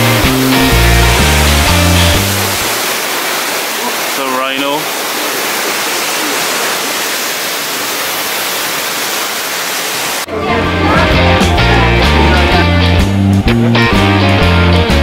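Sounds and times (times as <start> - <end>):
guitar background music: 0.0 - 2.7, 10.3 - 15.0
running water rushing: 0.0 - 15.0.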